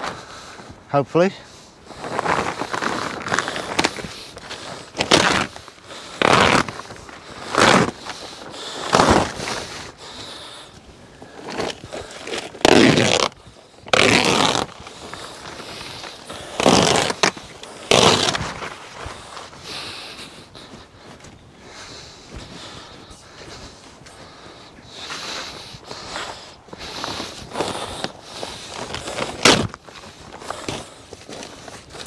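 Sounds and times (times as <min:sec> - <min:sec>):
plastic sheet crackling: 0:05.0 - 0:05.6, 0:06.2 - 0:06.8, 0:11.5 - 0:19.0.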